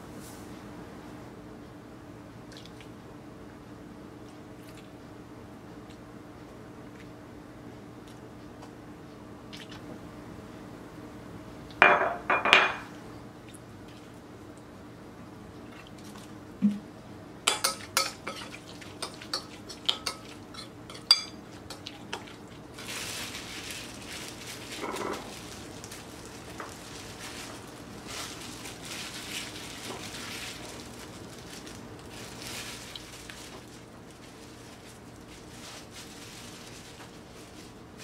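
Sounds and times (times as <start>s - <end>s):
metal spoon clinking on glass bowl: 17.5s - 21.4s
gloved hands rustling and squishing: 21.6s - 38.0s.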